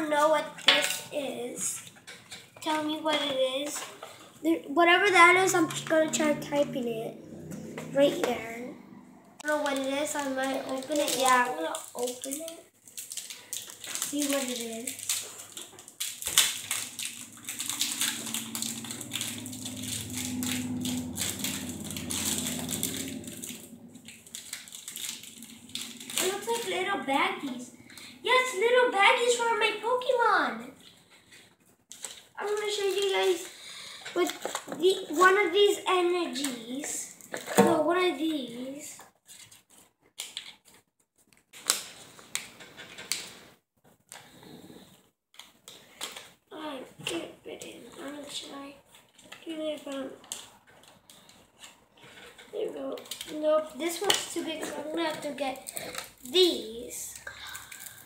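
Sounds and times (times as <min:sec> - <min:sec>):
plastic wrapper crinkling: 0:09.4 - 0:29.4, 0:31.9 - 0:35.4, 0:39.2 - 0:44.2, 0:48.1 - 0:58.0
wrapper ripping: 0:09.5 - 0:28.1, 0:41.5 - 0:43.4, 0:48.9 - 0:58.0.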